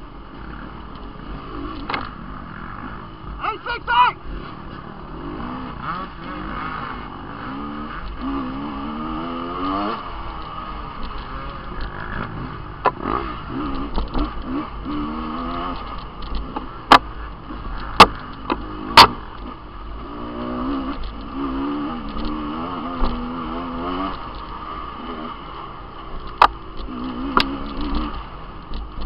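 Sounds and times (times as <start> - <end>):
dirt bike engines revving: 0.0 - 29.0
sharp knocks: 17.9 - 19.2.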